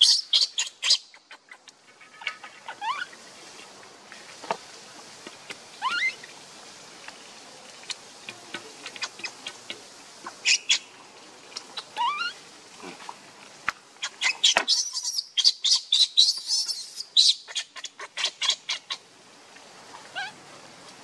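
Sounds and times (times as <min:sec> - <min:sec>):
baby monkey squeaking: 0:00.0 - 0:01.0, 0:05.8 - 0:06.2, 0:11.8 - 0:12.4, 0:14.1 - 0:18.9.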